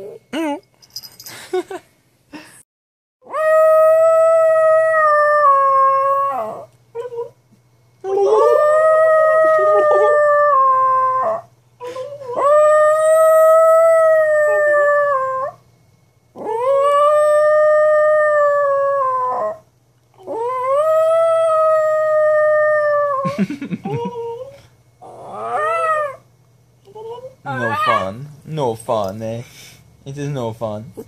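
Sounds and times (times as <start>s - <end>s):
small dog howling: 3.2s - 7.3s, 8.0s - 11.5s, 12.2s - 15.6s, 16.4s - 19.6s, 20.2s - 23.3s, 23.9s - 26.3s, 26.9s - 28.3s.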